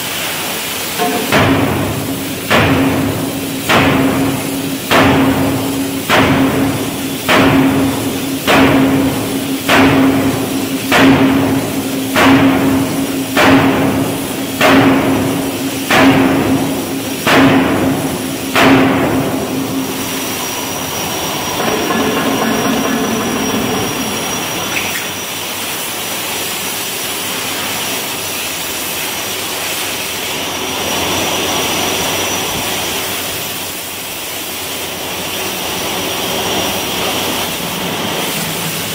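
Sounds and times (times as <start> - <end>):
rushing machinery noise: 0.0 - 38.9
steam hammer striking steel: 0.8 - 27.7
thin high whine: 1.0 - 2.4, 19.4 - 26.0.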